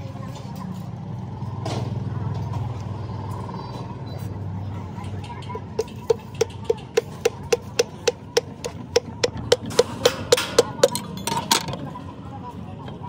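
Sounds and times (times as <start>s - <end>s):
wooden handle tapping metal piston: 5.8s - 11.4s.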